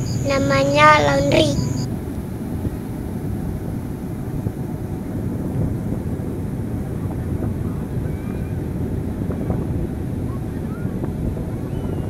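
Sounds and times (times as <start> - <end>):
surf breaking on beach: 0.0 - 12.0
wind buffeting microphone: 0.0 - 12.0.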